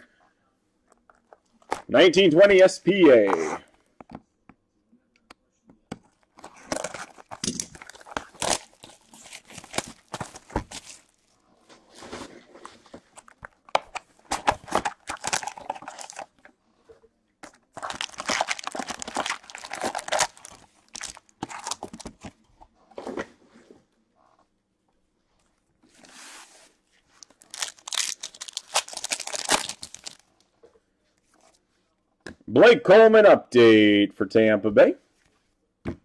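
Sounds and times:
foil wrappers crinkling and ripping: 6.4s - 11.2s, 14.3s - 16.3s, 17.8s - 22.2s, 27.2s - 30.2s.

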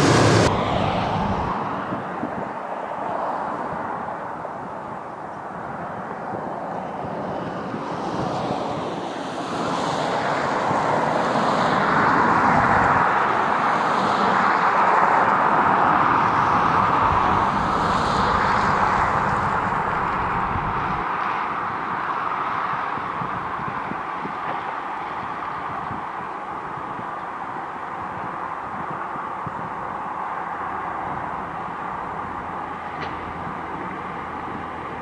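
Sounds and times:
diesel locomotives rumbling: 0.0s - 1.7s, 15.5s - 21.0s
wind noise on microphone: 0.0s - 35.0s.

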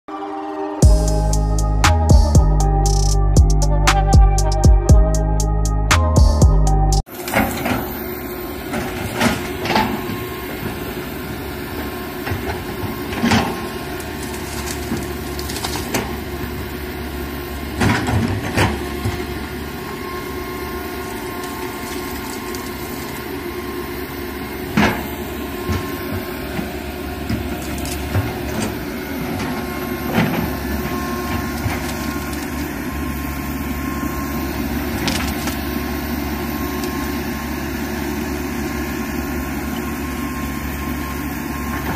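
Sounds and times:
excavator diesel engine running: 0.1s - 41.9s.

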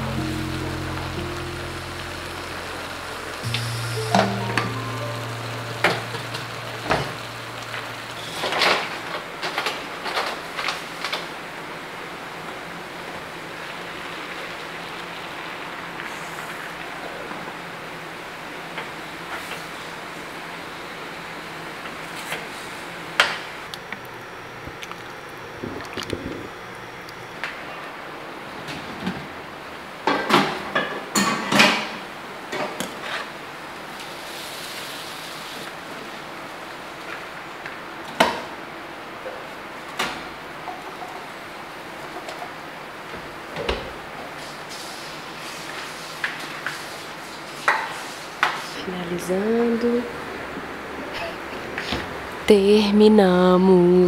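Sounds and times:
meat sizzling in a pot: 0.0s - 9.8s, 33.9s - 35.7s.

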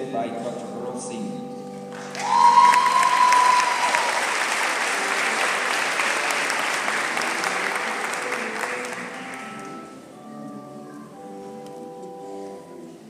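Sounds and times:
soft instrumental music: 0.0s - 13.0s
audience applauding: 1.9s - 9.9s.

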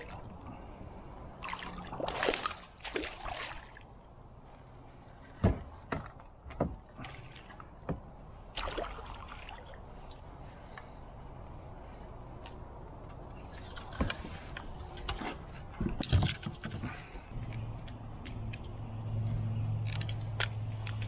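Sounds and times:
water splashes: 0.0s - 4.0s, 6.9s - 7.8s, 8.5s - 10.3s
fishing gear clicks and knocks: 12.4s - 18.8s, 19.8s - 21.0s.

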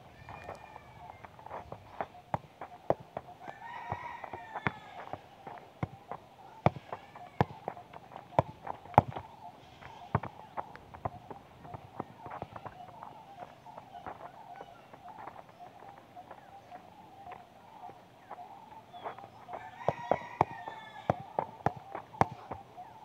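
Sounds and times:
footsteps on dry dirt: 0.0s - 23.0s
football being kicked: 1.5s - 14.3s, 19.5s - 22.7s.

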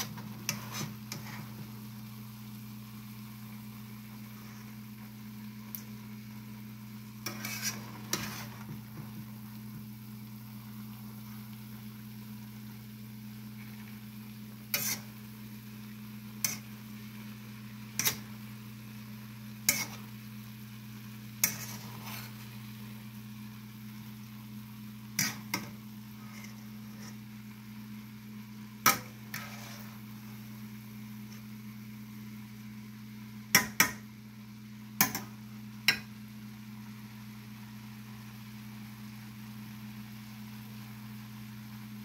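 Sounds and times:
metal spatula scraping wok: 0.0s - 1.6s, 7.2s - 9.0s, 14.7s - 15.2s, 16.4s - 16.7s, 18.0s - 18.3s, 19.6s - 20.1s, 21.4s - 22.5s, 25.2s - 27.2s, 28.8s - 30.1s.

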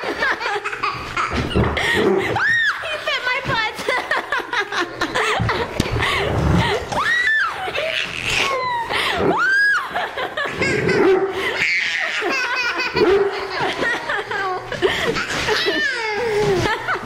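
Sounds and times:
toddler laughing and squealing: 7.0s - 13.5s, 15.1s - 16.8s.

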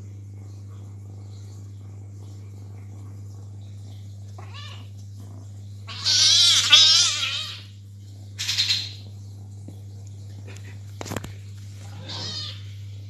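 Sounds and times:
cat yowling: 4.4s - 4.9s, 5.9s - 7.7s, 11.9s - 12.6s.

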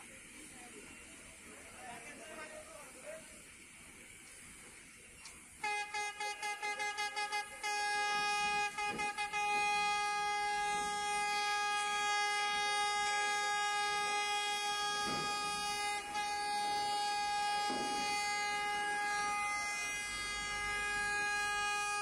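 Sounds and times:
vehicle horn tooting: 5.6s - 22.0s.

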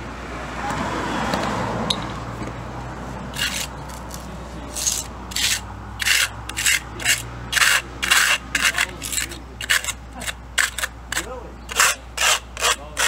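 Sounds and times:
trowel scraping wet cement: 3.3s - 13.0s.

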